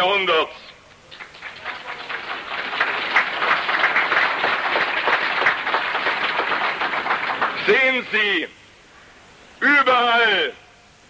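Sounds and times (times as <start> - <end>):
audience applauding: 0.9 - 8.3.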